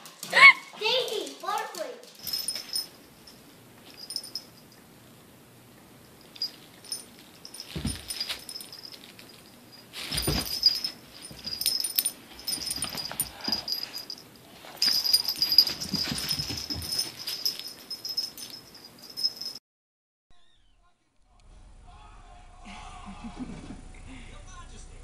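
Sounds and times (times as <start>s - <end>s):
dog play noises: 6.2s - 19.6s
dogs scuffling and tugging: 6.4s - 19.6s.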